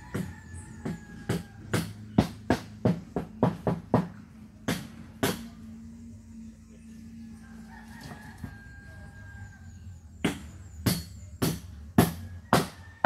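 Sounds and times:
rooster crowing: 0:00.0 - 0:02.2, 0:07.1 - 0:10.0, 0:12.2 - 0:13.0.

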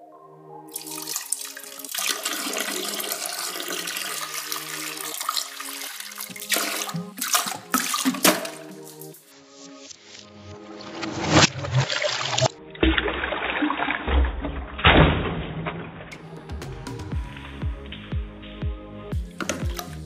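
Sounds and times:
background music: 0:00.0 - 0:20.0
liquid splashing into toilet water: 0:00.7 - 0:09.1, 0:11.7 - 0:15.9.

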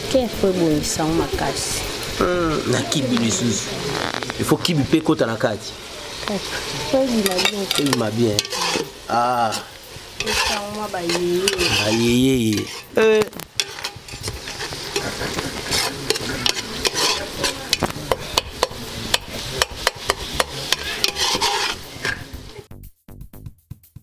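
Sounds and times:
sauce hissing: 0:01.0 - 0:22.6
metal spoon scraping a pot: 0:06.4 - 0:22.4
music with a steady beat: 0:21.9 - 0:24.0.

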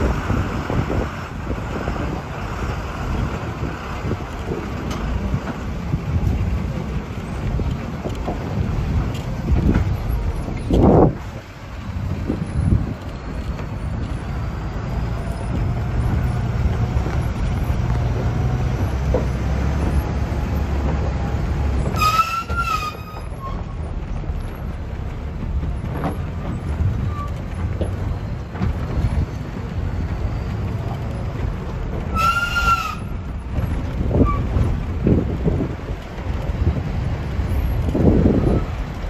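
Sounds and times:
bus rumbling on gravel road: 0:00.0 - 0:39.0.

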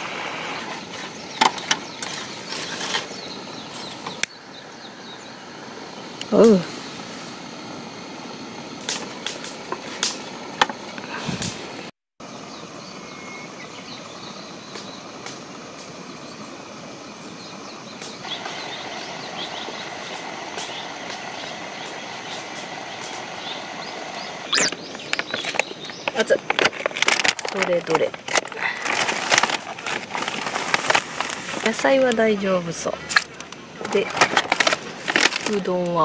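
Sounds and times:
steady background hiss: 0:00.0 - 0:36.0
faint high chirps: 0:23.6 - 0:24.8.

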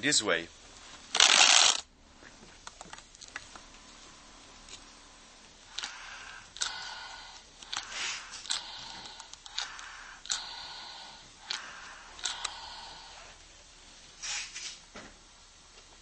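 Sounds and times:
breathing valve click: 0:05.7 - 0:13.4
hissing breaths through hose: 0:05.7 - 0:13.5.

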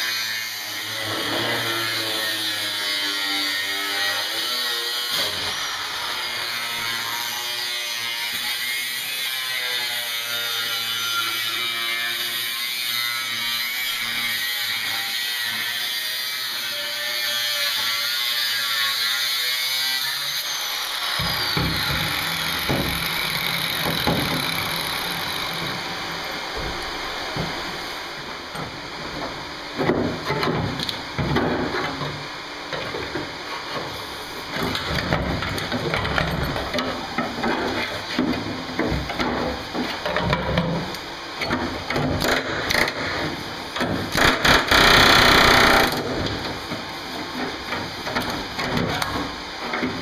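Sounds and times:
angle grinder cutting steel: 0:00.0 - 0:26.5
clatter of cut metal: 0:10.6 - 0:25.9, 0:41.4 - 0:50.0.

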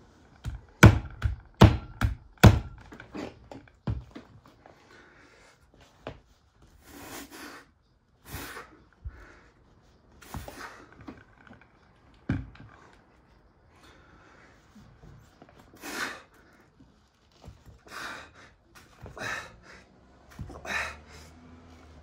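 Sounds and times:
hard breathing: 0:04.5 - 0:11.4, 0:12.6 - 0:22.0.

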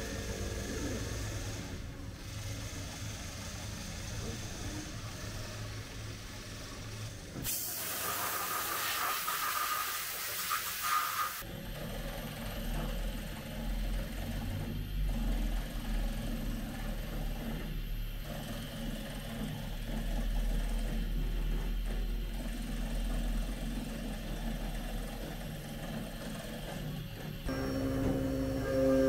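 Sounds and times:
machine hiss: 0:00.0 - 0:11.4, 0:26.1 - 0:29.0
low machine hum: 0:19.4 - 0:29.0.

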